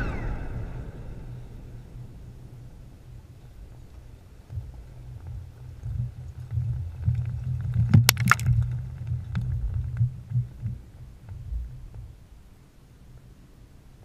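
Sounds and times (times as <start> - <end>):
low rumble of explosion: 0.0 - 12.2
sharp cracks: 7.6 - 10.0.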